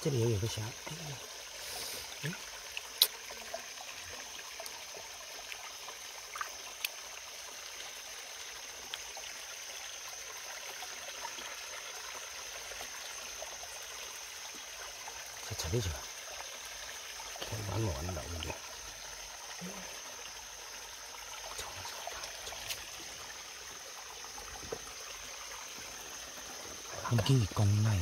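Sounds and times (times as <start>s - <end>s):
high-pitched hiss: 0.0s - 3.3s, 19.6s - 28.0s
stream water trickling: 0.0s - 28.0s.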